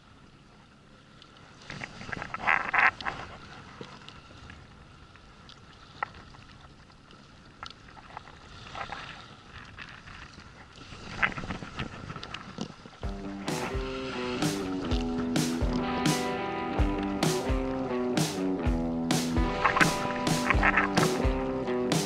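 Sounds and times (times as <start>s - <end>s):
water lapping at boat: 0.0s - 22.0s
wind: 0.0s - 22.0s
splash: 7.8s - 22.0s.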